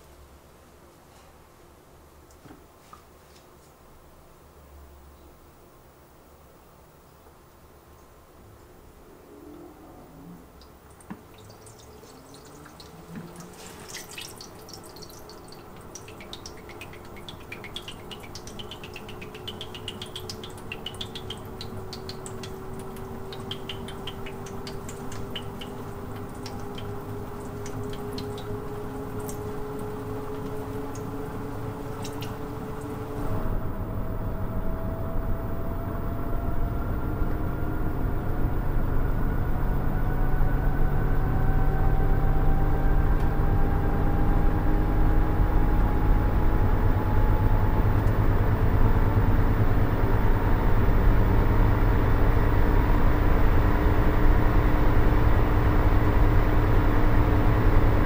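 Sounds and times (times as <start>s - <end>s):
washing machine spin motor whine: 8.8s - 58.0s
dripping and splashing water: 10.6s - 33.4s
deep spinning drum rumble: 21.2s - 58.0s.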